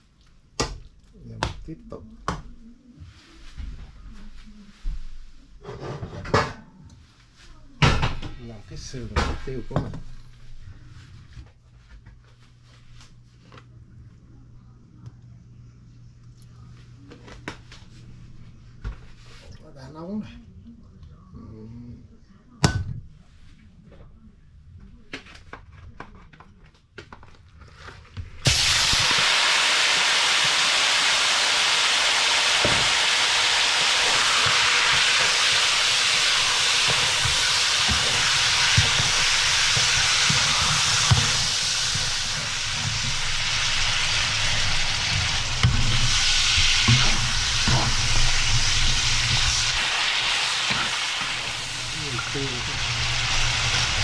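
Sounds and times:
meat sizzling in hot oil: 28.4 - 54.0.

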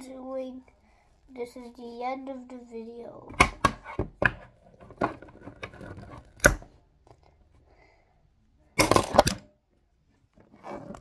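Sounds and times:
clattering plastic clacks: 3.4 - 7.2, 8.8 - 9.5
plastic toy pieces knocking together: 8.8 - 9.5.

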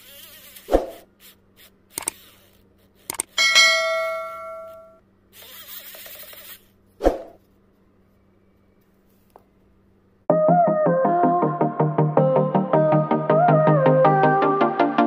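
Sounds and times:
sharp clicks: 1.9 - 2.3, 3.0 - 3.4
bell ding: 3.4 - 5.0.

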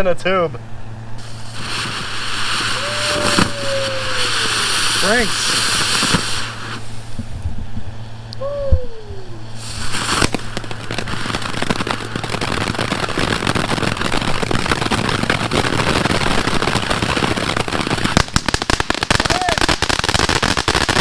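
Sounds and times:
firework sparks crackling: 1.2 - 7.4, 9.0 - 21.0
short falling call: 2.7 - 5.2.

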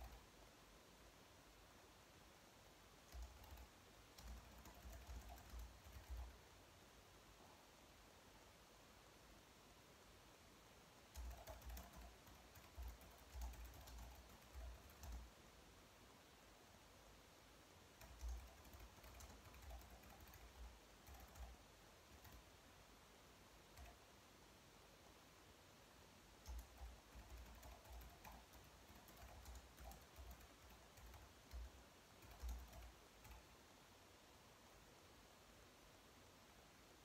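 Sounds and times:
soft keyboard typing: 0.0 - 0.4, 3.0 - 6.4, 11.1 - 15.4, 17.9 - 22.6, 23.6 - 24.1, 26.4 - 33.6.

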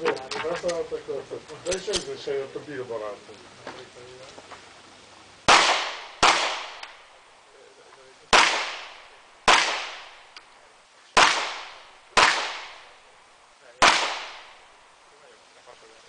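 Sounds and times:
pistol shots with echo: 5.5 - 7.1, 8.3 - 10.4, 11.2 - 13.1, 13.8 - 14.8.

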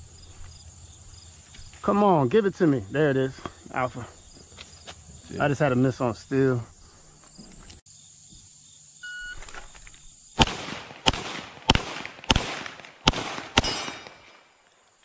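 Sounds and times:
crickets droning: 0.0 - 12.2
pistol shots echoing: 10.4 - 14.6.

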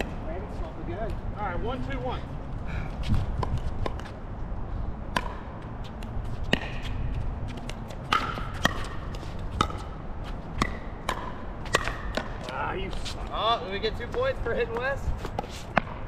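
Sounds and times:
wind rumble on microphone: 0.0 - 5.1, 6.0 - 8.0
ball bouncing on court: 5.1 - 6.9, 7.5 - 10.0, 10.6 - 12.6.

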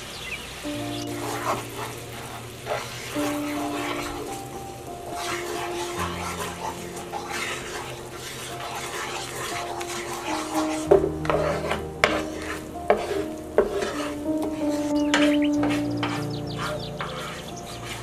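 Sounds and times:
sauce sizzling and bubbling: 0.0 - 18.0
spatula scraping frying pan: 0.8 - 18.0
spatula knocking on pan: 5.2 - 18.0.

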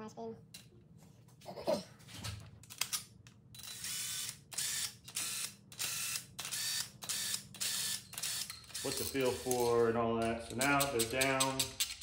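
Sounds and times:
power tool motor whine: 3.6 - 9.8
metal clicks: 10.2 - 12.0.

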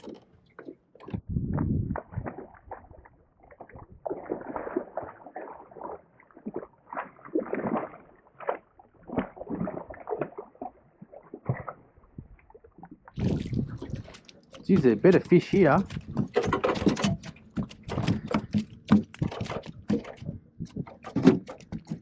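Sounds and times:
fish splashing in water: 1.9 - 22.0.

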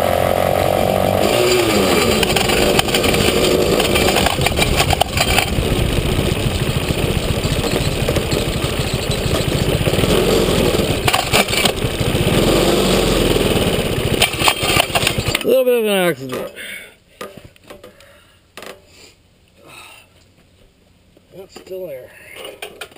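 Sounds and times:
small atv engine running: 0.0 - 15.5
rattling: 1.2 - 15.5.

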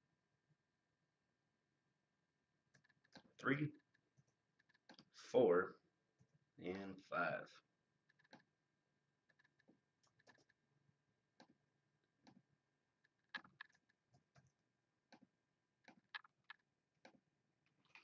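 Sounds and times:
mouse and keyboard clicking: 9.3 - 10.6, 13.1 - 17.2.

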